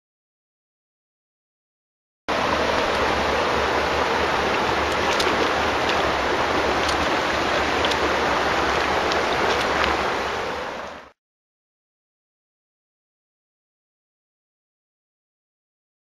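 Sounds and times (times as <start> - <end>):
stream water rushing and splashing: 2.3 - 11.2.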